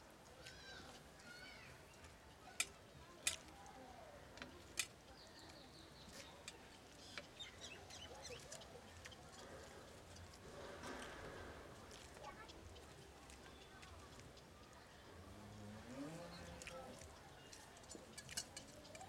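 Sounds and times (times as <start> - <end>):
eating by hand from plates: 4.4 - 14.9, 16.1 - 19.0
birds chirping: 5.1 - 10.1, 12.2 - 19.0.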